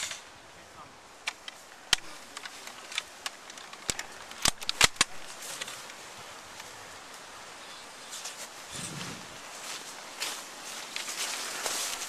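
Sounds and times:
airsoft gun cracks: 0:01.2 - 0:05.3.

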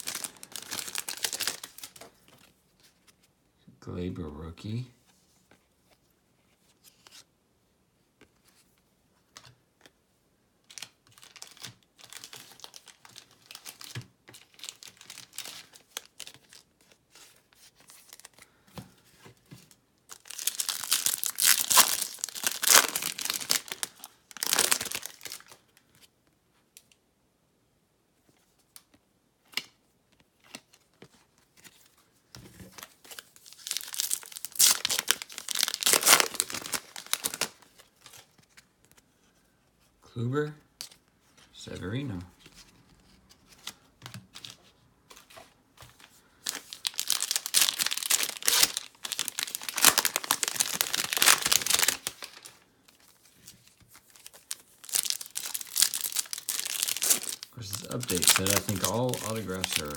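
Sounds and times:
foil wrapper tearing and crinkling: 0:00.0 - 0:02.0, 0:10.7 - 0:16.6, 0:20.1 - 0:25.6, 0:33.3 - 0:37.7, 0:46.5 - 0:52.6, 0:53.9 - 0:59.9
cards clicking and rustling: 0:10.7 - 0:18.4, 0:28.8 - 0:39.0, 0:43.4 - 0:59.9.

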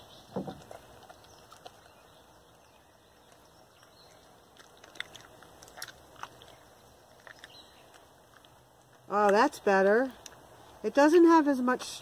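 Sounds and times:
slime squelching and popping: 0:04.1 - 0:09.0.

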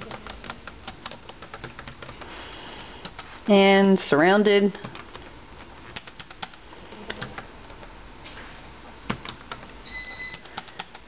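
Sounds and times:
short high electronic beep: 0:09.9 - 0:10.4.

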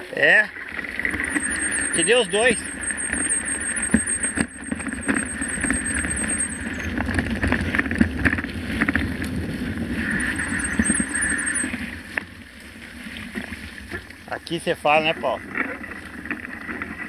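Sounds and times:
bike rattles and clicks: 0:00.6 - 0:17.0
bike tyres rumbling on gravel: 0:00.6 - 0:17.0
wind on microphone: 0:00.9 - 0:12.2
high thin pulsing buzz: 0:01.0 - 0:07.3, 0:09.7 - 0:12.0.

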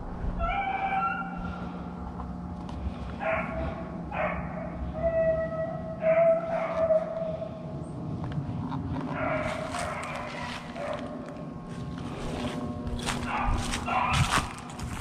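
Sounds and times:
dog baying: 0:00.4 - 0:01.6, 0:03.2 - 0:07.4, 0:09.1 - 0:11.2, 0:13.1 - 0:14.3
dogs barking: 0:00.4 - 0:01.7, 0:03.1 - 0:07.6, 0:09.0 - 0:11.4, 0:13.0 - 0:14.7.

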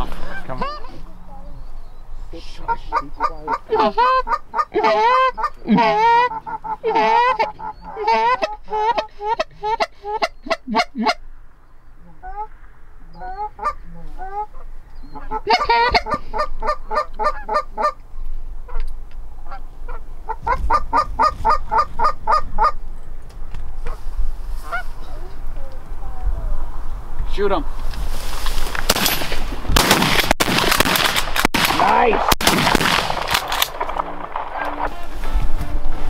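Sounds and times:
geese honking: 0:00.0 - 0:01.5, 0:02.3 - 0:11.3, 0:12.0 - 0:18.0, 0:18.6 - 0:22.9, 0:23.8 - 0:25.0, 0:33.7 - 0:36.0.

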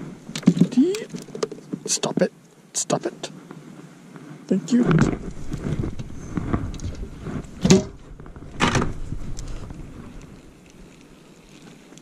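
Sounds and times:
knocks of fishing gear in boat: 0:04.9 - 0:09.0
low rumble: 0:04.9 - 0:10.5.

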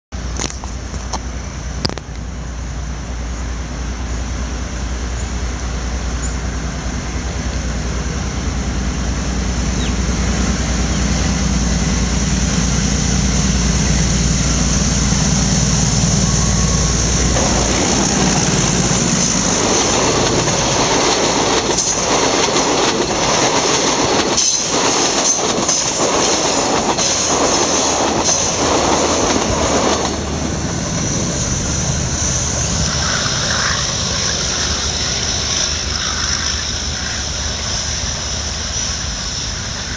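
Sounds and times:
locomotive engine drone: 0:00.2 - 0:39.9
train wheels clickety-clack: 0:16.6 - 0:39.9.

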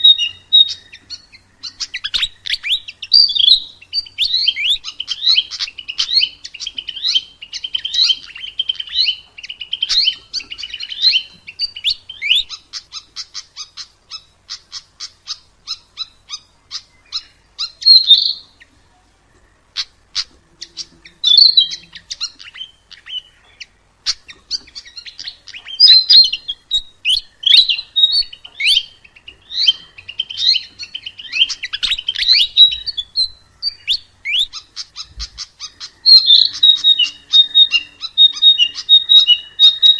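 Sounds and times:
bird twittering song: 0:00.0 - 0:39.9.

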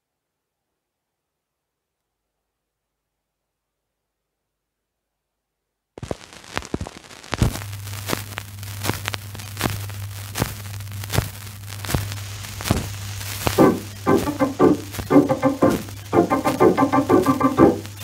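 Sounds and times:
record surface crackle: 0:06.0 - 0:18.0
steady low hum: 0:07.6 - 0:18.0
music: 0:13.4 - 0:18.0.

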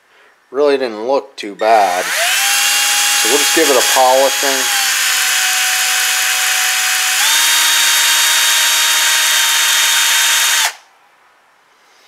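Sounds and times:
electric drill whine: 0:02.0 - 0:10.8.

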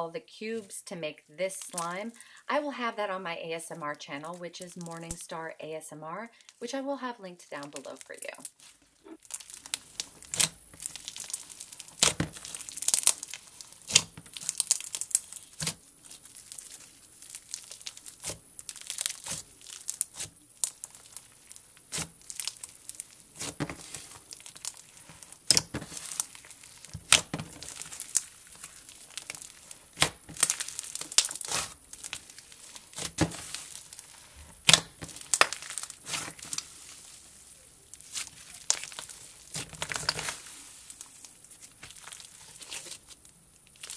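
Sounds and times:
slime crackling and popping: 0:07.6 - 0:43.9.

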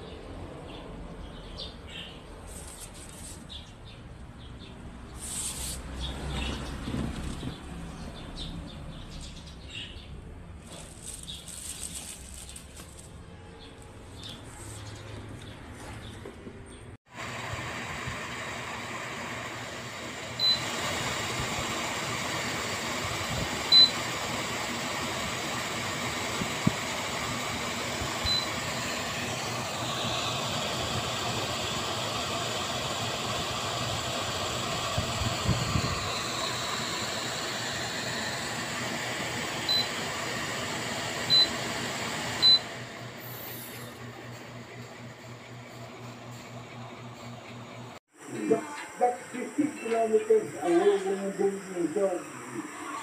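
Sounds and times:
air cooler fan hissing: 0:17.1 - 0:53.0
short high beeps: 0:42.4 - 0:42.6.

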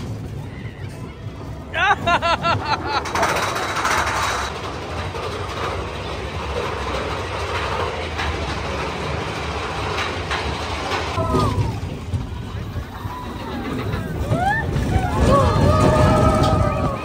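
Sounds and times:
roller coaster rumbling and rattling: 0:00.0 - 0:17.0.

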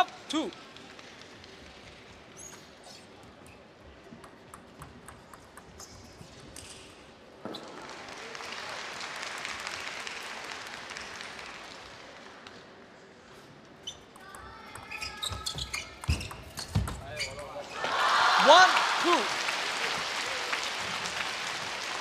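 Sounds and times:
table tennis ball clicks: 0:04.2 - 0:06.0
crowd applause: 0:07.8 - 0:12.4, 0:17.8 - 0:22.0.

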